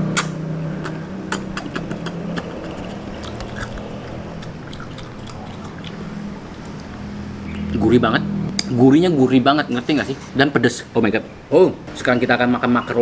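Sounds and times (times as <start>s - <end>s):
steady low hum: 0.0s - 9.5s
wet chewing smacks and clicks: 0.8s - 7.0s.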